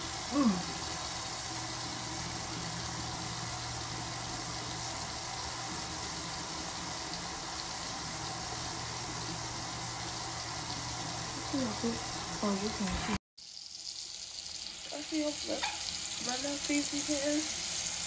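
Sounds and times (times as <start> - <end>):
exhaust fan humming and hissing: 0.0 - 13.2.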